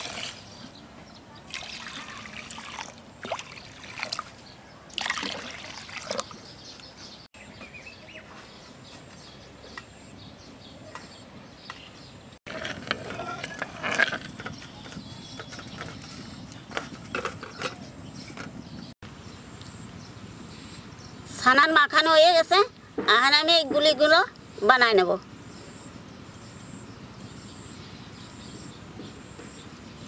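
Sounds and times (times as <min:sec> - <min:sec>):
water splashing into a pan: 0:01.5 - 0:06.4.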